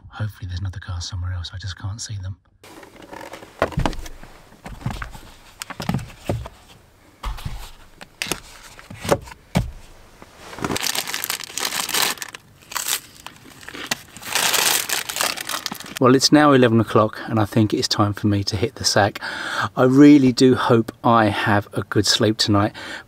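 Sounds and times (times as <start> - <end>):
soft knocks and bumps: 2.7 - 10.0
plastic snack packet crinkling: 10.6 - 16.0.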